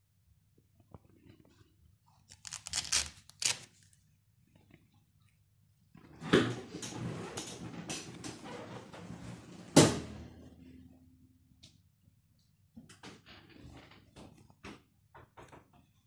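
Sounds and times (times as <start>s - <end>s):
paper blind crinkling: 2.3s - 4.0s.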